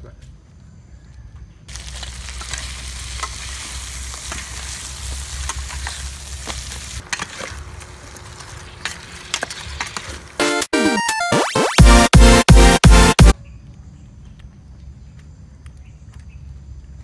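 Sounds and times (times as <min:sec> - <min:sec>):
curry sizzling and bubbling: 0:01.7 - 0:10.4.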